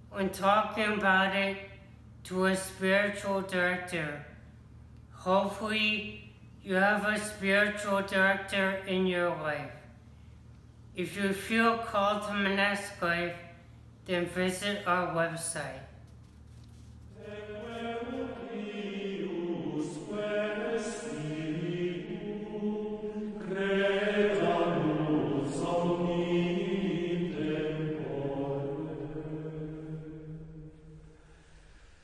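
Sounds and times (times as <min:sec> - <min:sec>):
religious chant sung in unison: 0:17.2 - 0:31.5.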